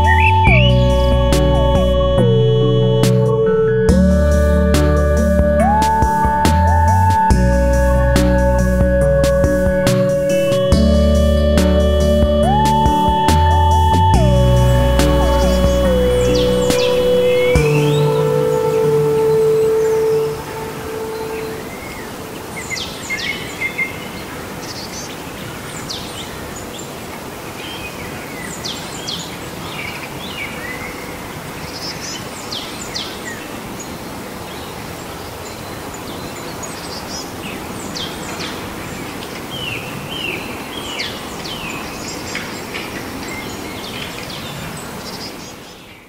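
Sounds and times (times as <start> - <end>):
birds chirping: 0.0 - 46.0
outdoor background hiss: 0.0 - 46.0.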